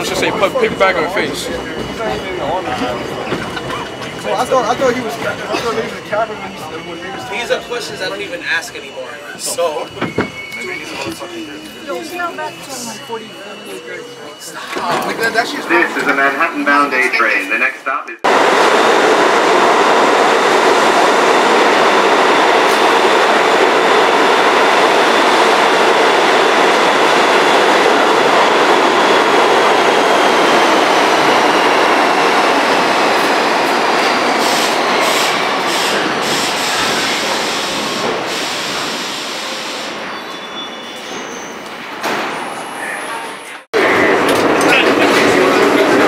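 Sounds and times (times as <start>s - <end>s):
train wheels rumbling on rail: 0.0s - 12.7s, 18.2s - 46.0s
train brake whine: 0.0s - 16.4s
clicks and knocks of train stopping: 43.8s - 46.0s.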